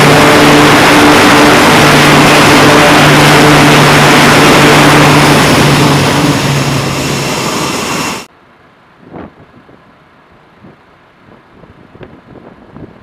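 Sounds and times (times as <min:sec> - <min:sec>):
turboprop engines at full power: 0:00.0 - 0:08.3.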